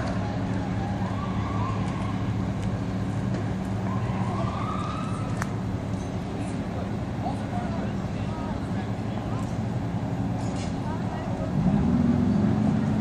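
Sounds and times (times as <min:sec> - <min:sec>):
distant siren wailing: 0:00.1 - 0:02.5, 0:03.8 - 0:05.6.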